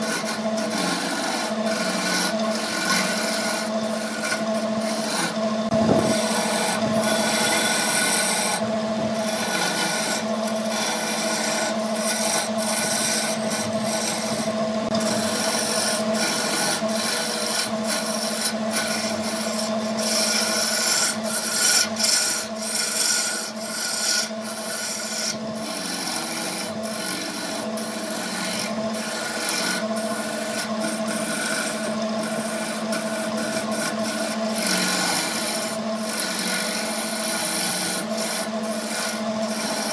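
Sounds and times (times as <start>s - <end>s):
chisel scraping spinning wood: 0.0s - 39.9s
wood lathe motor hum: 0.0s - 39.9s.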